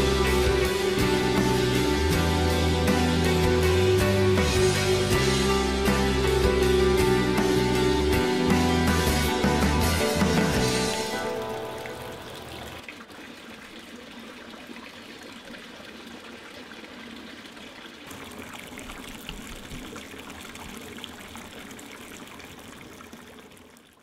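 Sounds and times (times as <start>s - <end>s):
background music: 0.0s - 12.8s
water splashing into bath: 18.0s - 23.9s.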